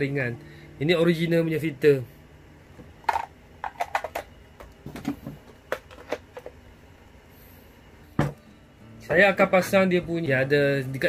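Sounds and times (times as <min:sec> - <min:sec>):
plastic parts clicking and knocking: 0:03.0 - 0:06.6.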